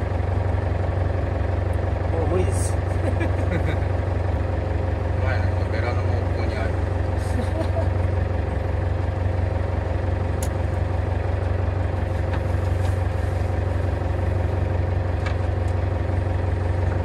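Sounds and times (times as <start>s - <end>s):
boat engine idling: 0.0s - 17.0s.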